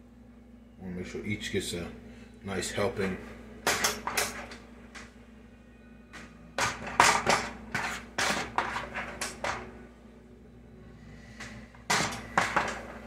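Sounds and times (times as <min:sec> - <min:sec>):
utensil scraping a dish: 0:06.6 - 0:09.6.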